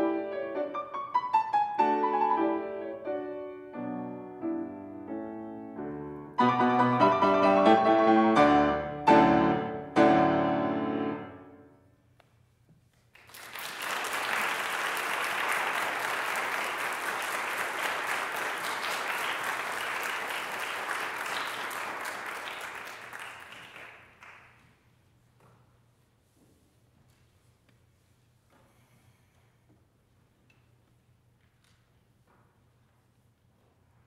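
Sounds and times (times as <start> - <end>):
piano chords ringing: 0.0 - 11.8
audience applauding: 13.1 - 24.6.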